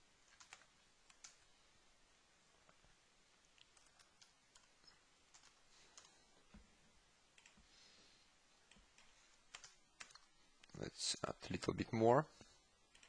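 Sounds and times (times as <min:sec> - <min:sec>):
faint keyboard keystrokes: 0:00.2 - 0:01.4, 0:07.4 - 0:07.6.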